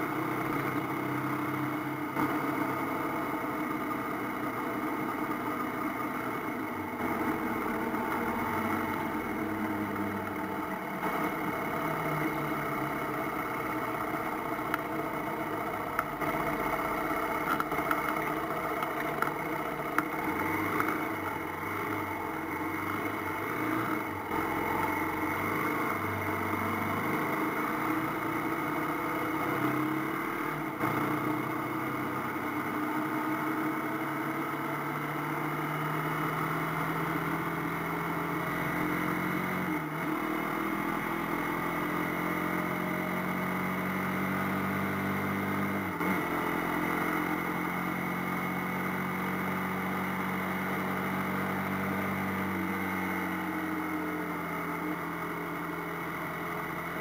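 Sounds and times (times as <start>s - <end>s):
motorcycle engine changing gear: 6.2s - 30.2s.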